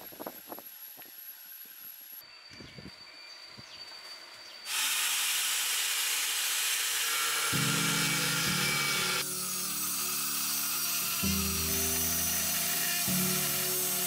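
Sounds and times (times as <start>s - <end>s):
angle grinder cutting steel: 4.6s - 14.0s
music of low sustained chords: 7.6s - 14.0s.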